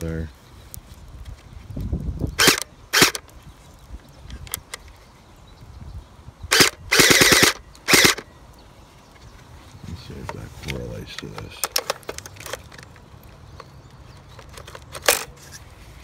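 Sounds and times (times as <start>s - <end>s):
toy blaster motor bursts: 2.4s - 3.2s, 6.5s - 8.2s.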